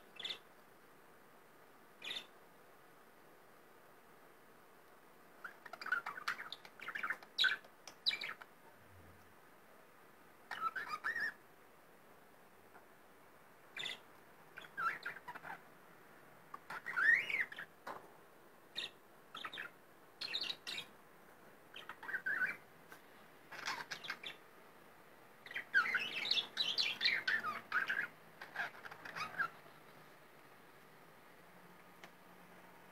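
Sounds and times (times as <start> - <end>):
budgerigar chirping and chattering: 0.2 - 0.4, 2.0 - 2.3, 5.4 - 8.4, 10.5 - 11.4, 13.8 - 14.0, 14.6 - 15.6, 16.5 - 17.7, 18.8 - 20.9, 21.7 - 22.6, 23.5 - 24.4, 25.4 - 29.6.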